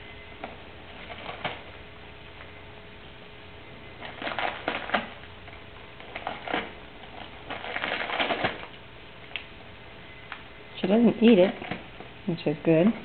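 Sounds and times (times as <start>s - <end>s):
packing paper crackling: 0.8s - 1.8s, 4.0s - 9.5s.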